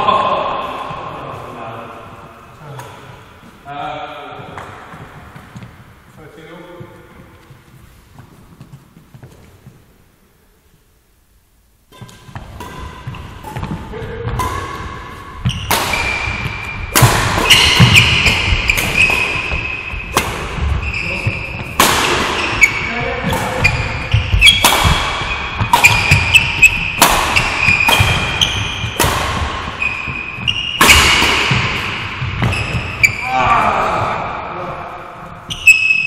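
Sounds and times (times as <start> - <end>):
rackets hitting shuttlecock: 11.9 - 33.2
court shoes squeaking: 11.9 - 33.4, 35.4 - 36.0.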